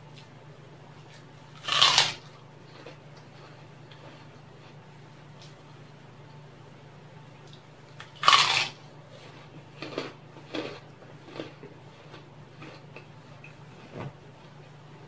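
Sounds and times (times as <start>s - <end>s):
low steady hum: 0.0s - 15.0s
cracker crunching: 1.0s - 4.8s, 7.4s - 13.6s.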